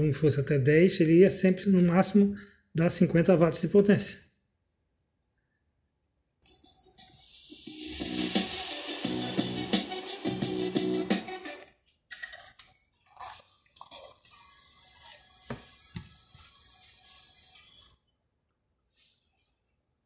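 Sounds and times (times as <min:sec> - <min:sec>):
steady hiss: 0:06.4 - 0:10.2
music from car stereo: 0:06.6 - 0:11.6.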